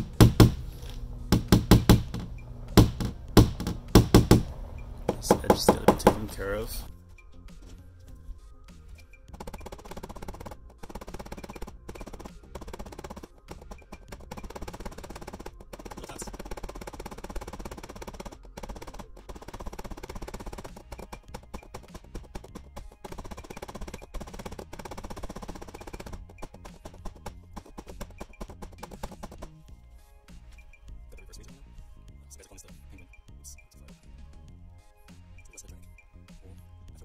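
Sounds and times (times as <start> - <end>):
hammer tapping metal tool: 0.0 - 6.5
background music: 0.0 - 37.0.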